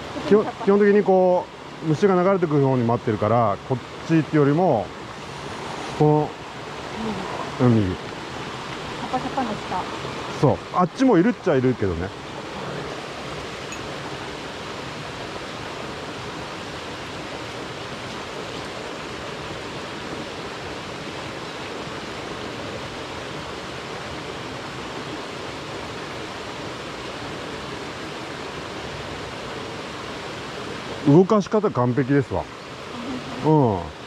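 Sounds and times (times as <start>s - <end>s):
mountain stream flowing: 0.0s - 34.0s.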